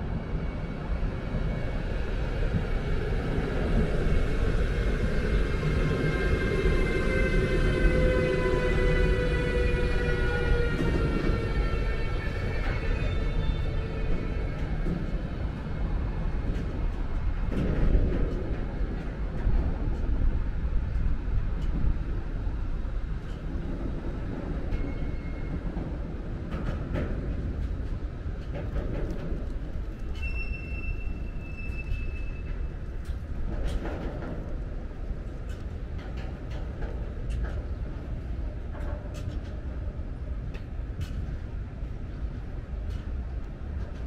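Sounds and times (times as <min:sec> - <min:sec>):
train wheels rumbling on rails: 0:00.0 - 0:44.0
faint wheel squeal: 0:30.0 - 0:32.8.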